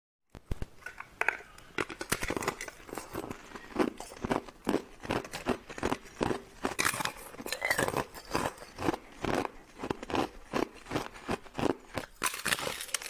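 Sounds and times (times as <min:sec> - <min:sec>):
ice cracking and clinking: 0:06.8 - 0:09.5, 0:11.6 - 0:13.0.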